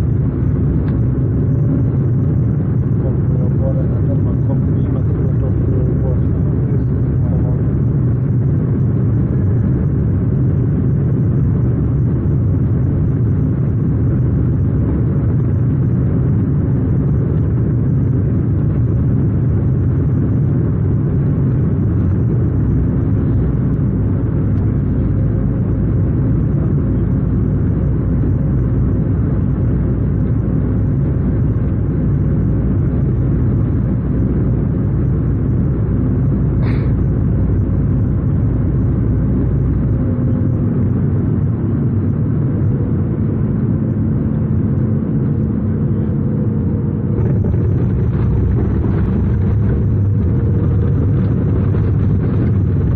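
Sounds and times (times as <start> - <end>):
airflow and turbofan rumble: 0.0 - 52.9
faint engine hum: 0.0 - 52.9.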